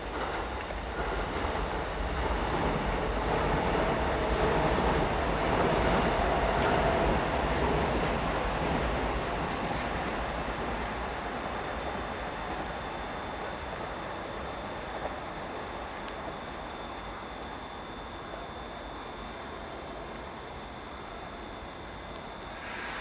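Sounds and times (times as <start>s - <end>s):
electric train passing: 0.0s - 23.0s.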